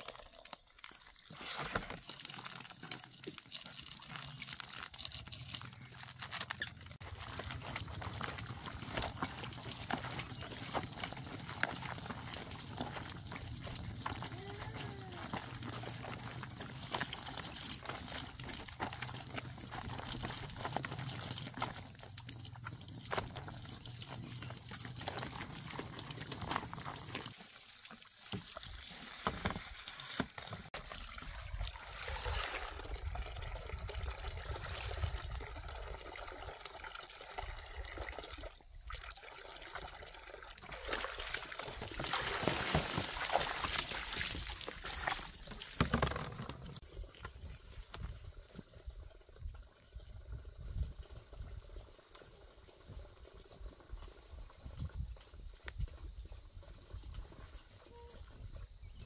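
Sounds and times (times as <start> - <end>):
water poured out of basin: 0.0 - 55.6
water trickling into a basin: 0.0 - 59.0
clothes scrubbed in soapy water: 1.2 - 30.9, 40.6 - 45.8.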